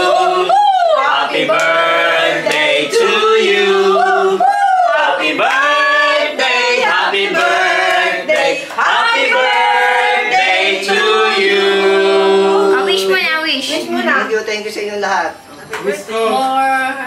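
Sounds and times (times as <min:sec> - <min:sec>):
group singing unaccompanied: 0:00.0 - 0:13.1.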